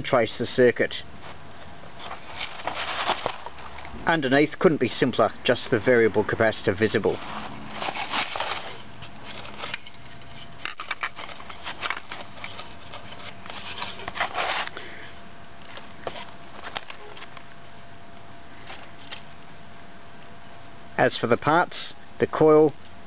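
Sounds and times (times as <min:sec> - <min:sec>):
handling rustles and small clicks: 0:01.2 - 0:04.0, 0:07.1 - 0:14.8, 0:15.6 - 0:19.5.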